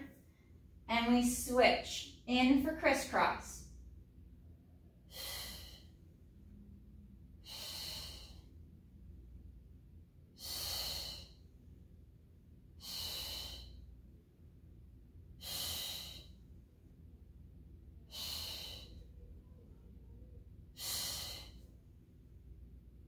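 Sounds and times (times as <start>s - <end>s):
woman's sharp hissing exhales: 5.1s - 5.9s, 7.5s - 8.4s, 10.4s - 11.4s, 12.8s - 13.8s, 15.4s - 16.4s, 18.1s - 19.1s, 20.8s - 21.6s.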